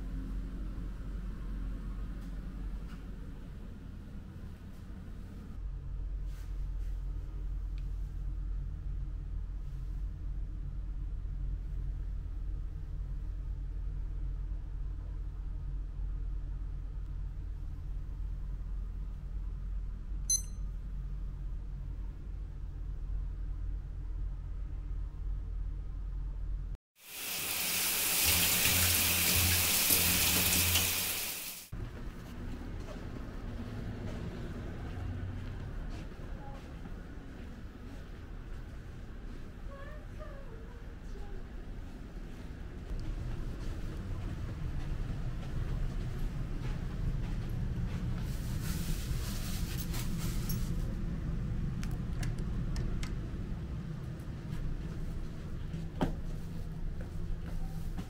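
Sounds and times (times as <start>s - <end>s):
low room hum: 0.0s - 26.8s, 31.7s - 58.0s
shower running: 27.0s - 31.7s.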